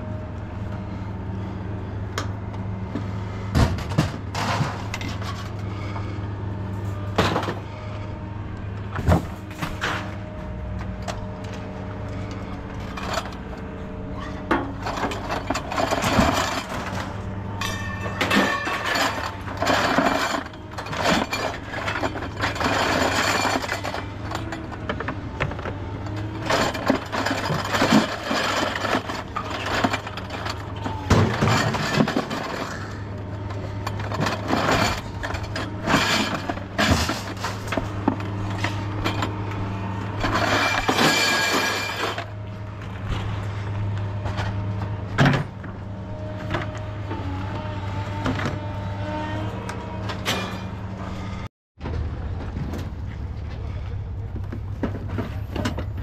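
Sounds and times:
scrap metal clattering: 0:03.5 - 0:08.0, 0:12.2 - 0:45.6.

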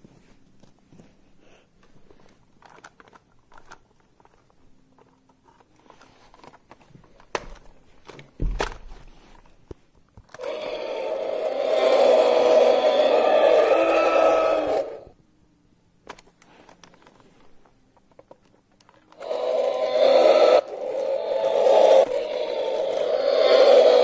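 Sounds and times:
plastic toys rustling and clicking: 0:01.8 - 0:14.9, 0:16.0 - 0:24.0
sustained roar-like sound: 0:10.4 - 0:15.1, 0:19.2 - 0:24.0.

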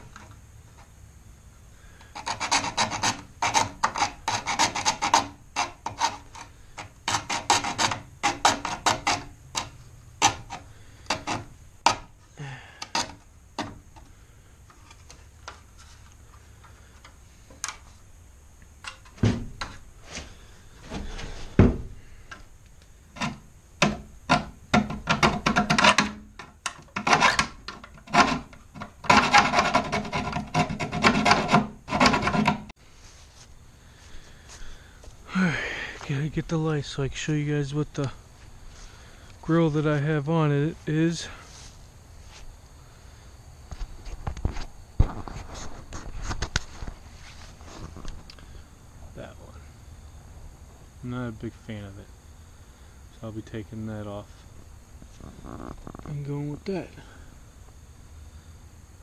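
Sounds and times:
hand tool rasping plastic: 0:02.0 - 0:12.1, 0:12.7 - 0:14.1, 0:23.2 - 0:32.7
knocks: 0:19.1 - 0:19.8, 0:21.5 - 0:22.0.

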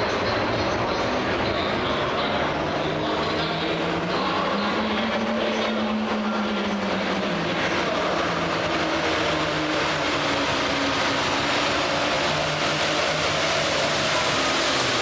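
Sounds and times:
diesel tractor engine at high revs: 0:00.0 - 0:15.0.

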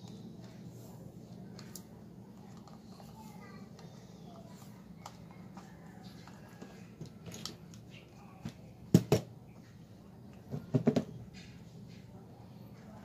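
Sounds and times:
tape clicks and rustles: 0:01.3 - 0:08.0.

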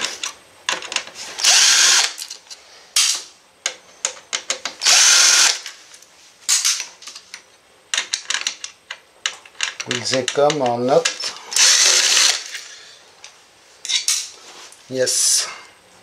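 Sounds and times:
cordless screwdriver whirring: 0:01.4 - 0:02.2, 0:04.8 - 0:05.6, 0:11.6 - 0:12.4.

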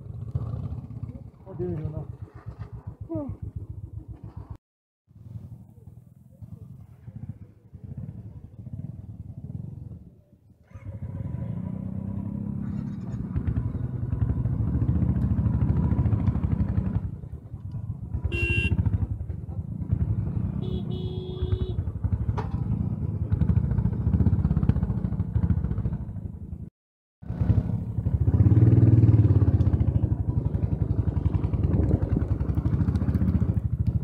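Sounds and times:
vehicle horn beeps: 0:18.3 - 0:18.8, 0:20.6 - 0:21.8
motorcycle engine thumping: 0:20.6 - 0:22.9.

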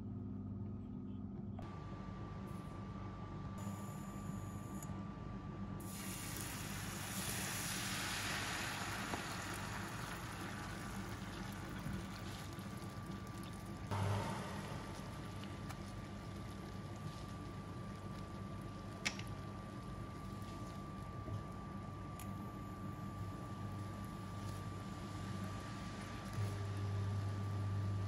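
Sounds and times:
batter sizzling in frying pan: 0:05.9 - 0:13.9.

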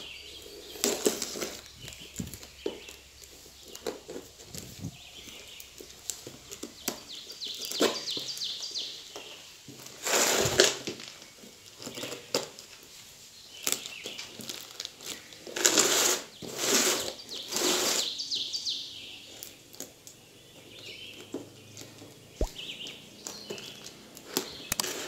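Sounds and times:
bird chirping: 0:00.0 - 0:09.5, 0:17.2 - 0:24.8.

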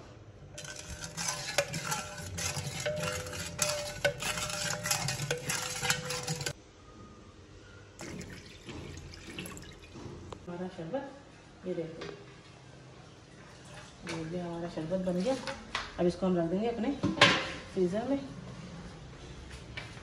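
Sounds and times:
ladle scraping metal pot: 0:00.5 - 0:06.6
water pouring into pot: 0:08.0 - 0:10.0.

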